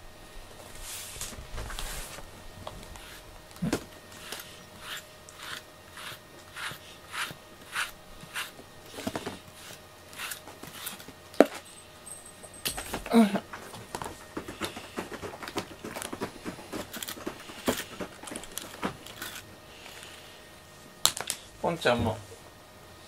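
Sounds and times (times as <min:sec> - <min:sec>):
brush swishing through fur: 0:00.7 - 0:02.3.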